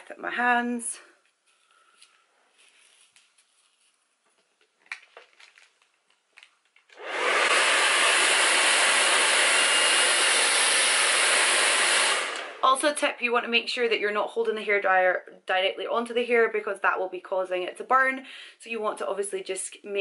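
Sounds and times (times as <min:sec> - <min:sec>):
faint rustles and clicks: 0:01.1 - 0:06.9
hair dryer blowing air: 0:07.0 - 0:12.7.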